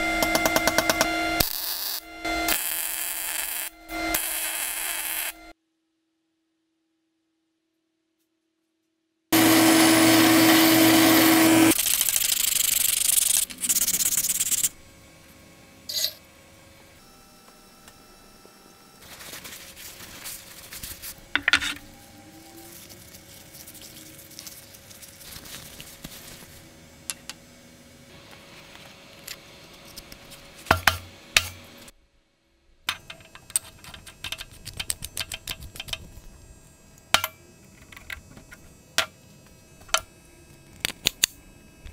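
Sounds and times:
power tool humming: 0:00.0 - 0:05.5, 0:09.3 - 0:19.0
scraping and rubbing: 0:19.0 - 0:26.6.

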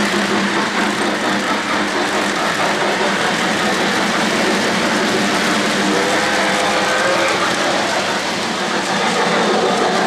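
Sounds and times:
model train rolling on track: 0:00.0 - 0:10.0.

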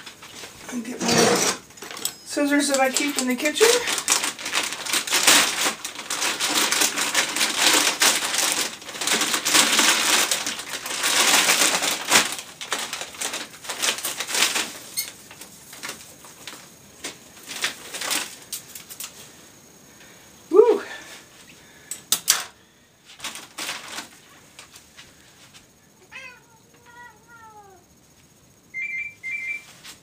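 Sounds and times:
plastic bag crinkling: 0:01.6 - 0:19.2, 0:23.0 - 0:25.5.

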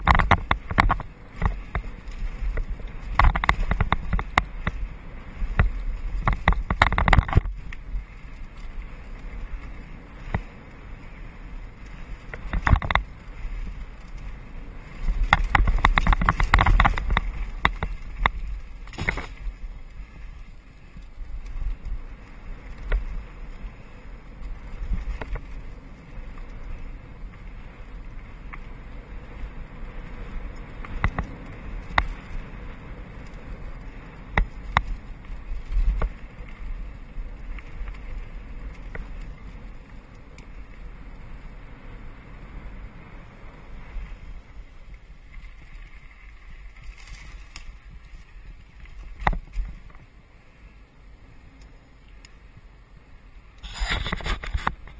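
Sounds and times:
bike rattling over bumps: 0:00.0 - 0:52.7
bike tyre noise: 0:00.0 - 0:54.9
wind rumbling on microphone: 0:00.0 - 0:54.9.

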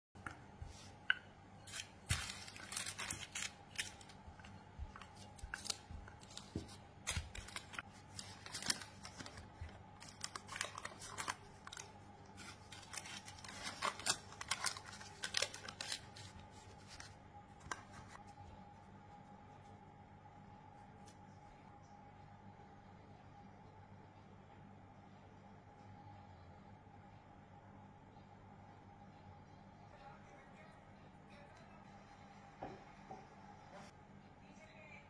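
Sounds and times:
faint steady hum: 0:00.2 - 0:35.0
baking paper crinkling: 0:00.6 - 0:18.4.

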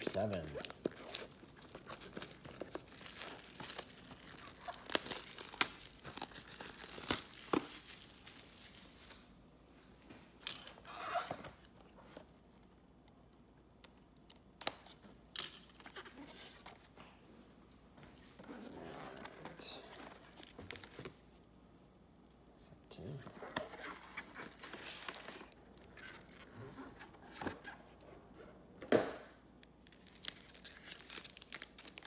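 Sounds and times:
plastic wrap crackling: 0:00.0 - 0:09.3, 0:29.7 - 0:32.0
box handling rustles: 0:23.3 - 0:28.0.

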